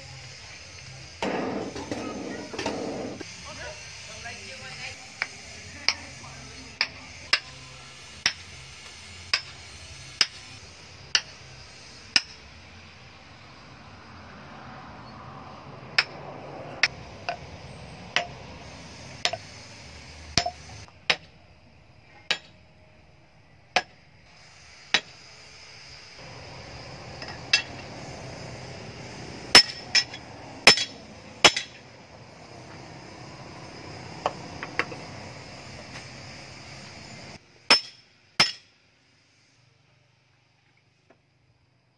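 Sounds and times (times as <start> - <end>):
hammer ringing on steel anvil: 29.6 - 31.8, 37.7 - 38.7.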